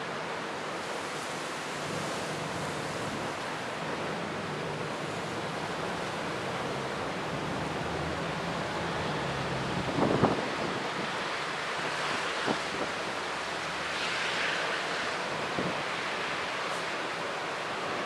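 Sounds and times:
storm wind rushing: 0:01.9 - 0:11.3.

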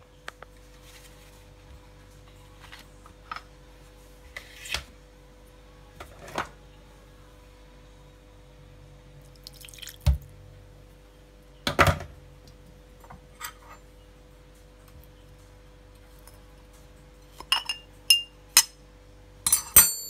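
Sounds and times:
faint steady hum: 0:00.0 - 0:20.0
water pouring into glass dish: 0:09.4 - 0:10.0.

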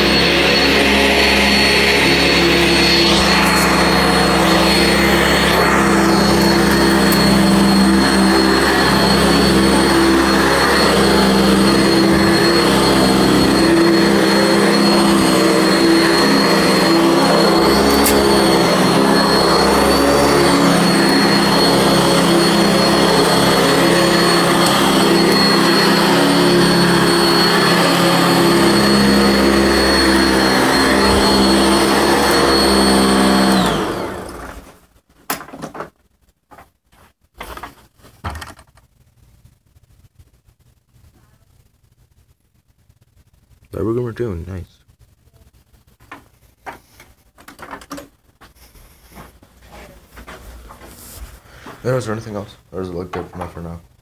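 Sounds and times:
vacuum cleaner on carpet: 0:00.0 - 0:34.8.

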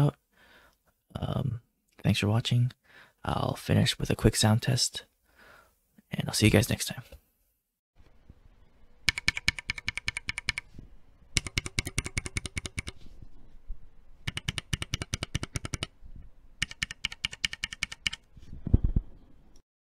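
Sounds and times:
mechanical keyboard clacking: 0:09.1 - 0:10.7, 0:11.4 - 0:13.0, 0:14.2 - 0:15.9, 0:16.6 - 0:18.3.

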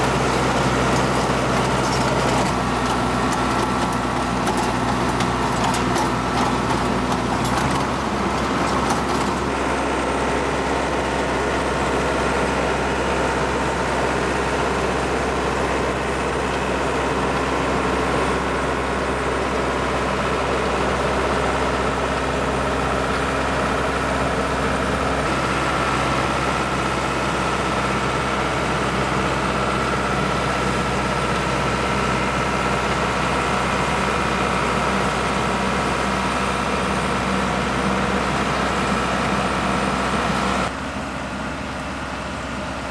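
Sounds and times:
rotor churning through dirt: 0:00.0 - 0:14.6
diesel tractor engine running: 0:00.0 - 0:42.9.

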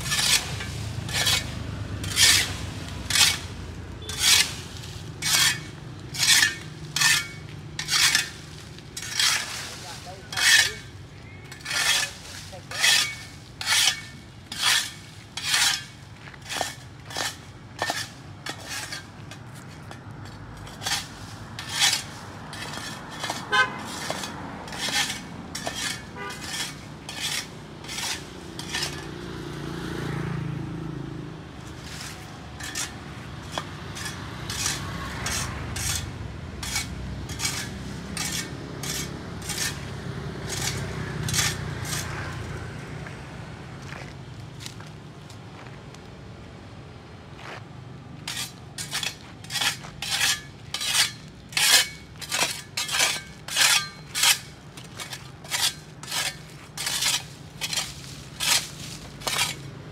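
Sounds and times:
hand tool scraping pavement: 0:00.0 - 0:30.1, 0:31.4 - 0:43.1, 0:47.4 - 0:59.9
vehicle passing with low hum: 0:00.0 - 0:59.9.

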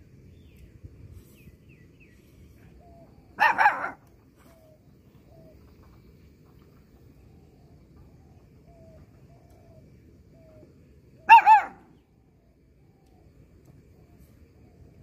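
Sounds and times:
faint bird chirps: 0:00.2 - 0:15.0
puppy barking: 0:03.4 - 0:04.0, 0:11.3 - 0:11.8.

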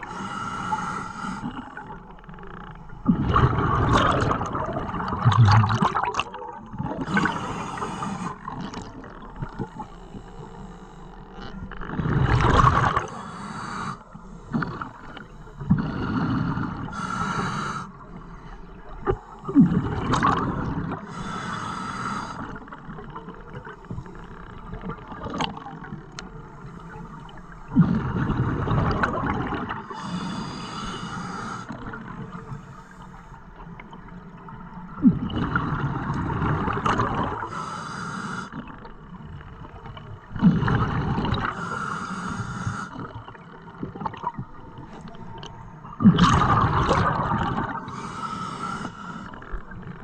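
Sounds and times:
regulator breath hiss: 0:00.0 - 0:01.6, 0:07.3 - 0:08.4, 0:13.1 - 0:14.6, 0:15.3 - 0:18.5, 0:21.1 - 0:22.5, 0:29.8 - 0:31.8, 0:37.5 - 0:38.6, 0:41.5 - 0:43.0, 0:47.9 - 0:49.4
exhaled bubbles rushing: 0:03.0 - 0:07.5, 0:11.9 - 0:13.1, 0:19.0 - 0:21.0, 0:27.7 - 0:29.8, 0:34.9 - 0:37.4, 0:40.2 - 0:41.5, 0:45.4 - 0:47.9.

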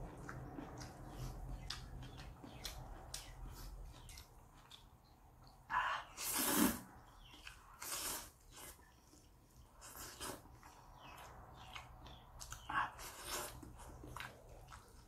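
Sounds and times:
wet chewing clicks: 0:00.0 - 0:05.7, 0:07.1 - 0:15.0
noodle slurp: 0:06.2 - 0:06.9.

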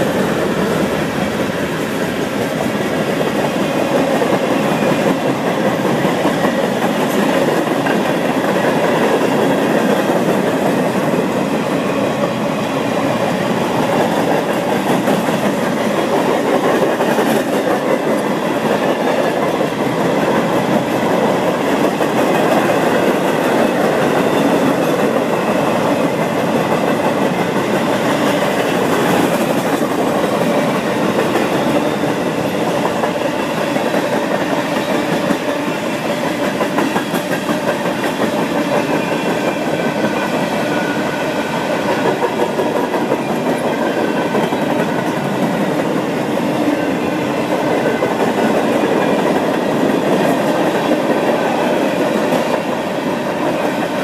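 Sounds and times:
freight train wheels on rails: 0:00.0 - 0:54.0.

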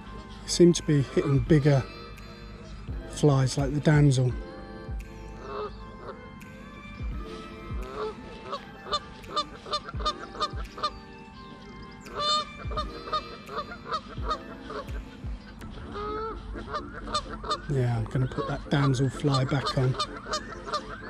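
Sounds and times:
geese honking: 0:00.0 - 0:04.6, 0:05.3 - 0:06.4, 0:07.1 - 0:21.0.

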